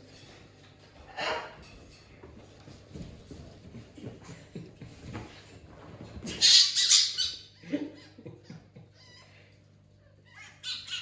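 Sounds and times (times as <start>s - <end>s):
cockatoo squawking harshly: 10.4s - 11.0s.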